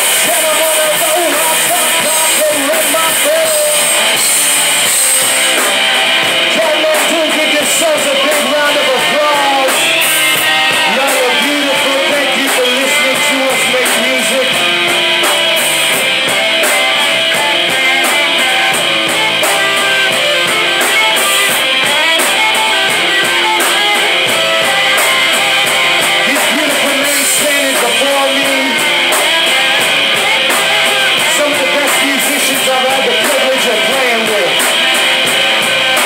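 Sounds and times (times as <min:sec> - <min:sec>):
drum kit: 0:00.0 - 0:36.0
electric bass: 0:00.0 - 0:36.0
electric guitar: 0:00.0 - 0:36.0.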